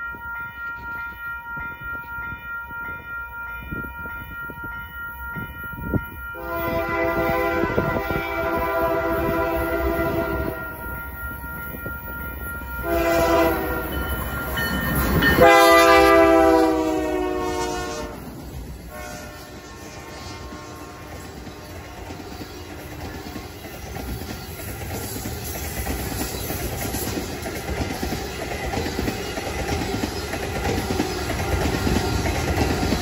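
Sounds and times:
locomotive air horn blasts: 0.0s - 11.8s, 12.7s - 14.0s, 15.4s - 18.3s, 18.9s - 23.0s
train wheels clicking over rail joints: 18.2s - 33.0s.

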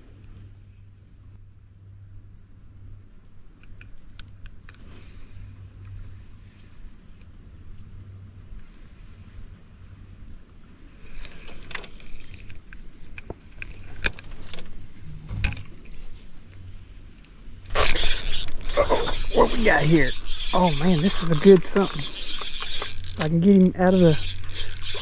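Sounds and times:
fishing reel clicking and rattling: 11.1s - 12.6s, 17.7s - 25.0s
steady low hum: 12.0s - 25.0s.

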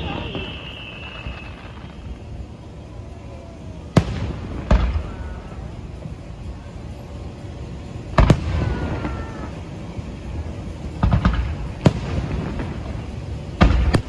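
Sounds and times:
fireworks bursting: 0.0s - 14.0s.

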